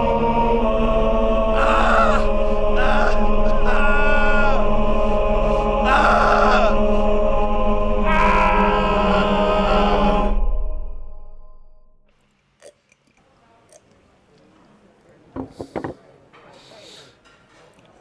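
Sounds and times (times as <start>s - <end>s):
higher vocal swells: 0.0s - 10.6s
low chanting voices: 0.0s - 10.7s
sustained drone: 0.0s - 11.7s.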